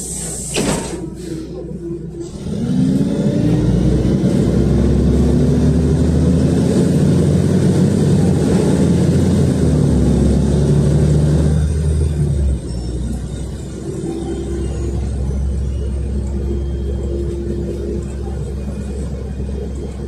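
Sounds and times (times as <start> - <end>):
bus engine accelerating: 0.0 - 20.0.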